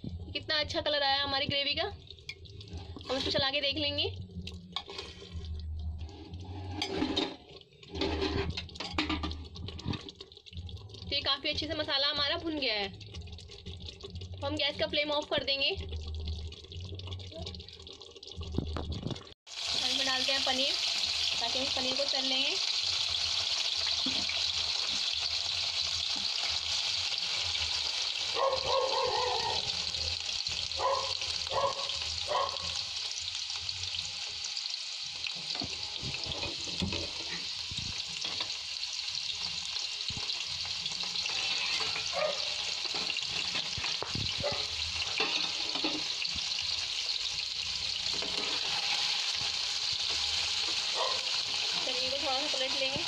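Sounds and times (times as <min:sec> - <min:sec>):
cheese sizzling in hot oil: 0:00.0 - 0:53.0
metal spatula scraping pan: 0:02.8 - 0:03.5, 0:04.8 - 0:05.4, 0:06.1 - 0:10.1, 0:35.7 - 0:37.6, 0:40.8 - 0:44.1, 0:44.9 - 0:46.3, 0:47.9 - 0:52.0.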